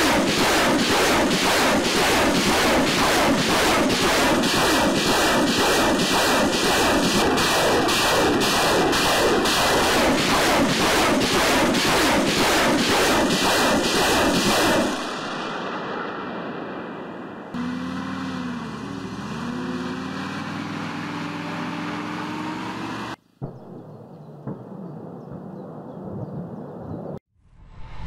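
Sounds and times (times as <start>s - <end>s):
rocket launcher firing salvo: 0.0s - 17.6s
truck engine driving off: 17.6s - 23.2s.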